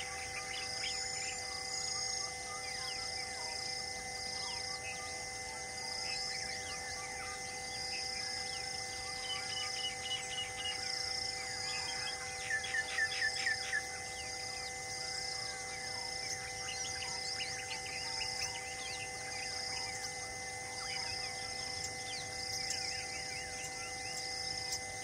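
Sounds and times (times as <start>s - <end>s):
insects buzzing: 0.0s - 25.0s
birds chirping and calling: 8.4s - 20.2s.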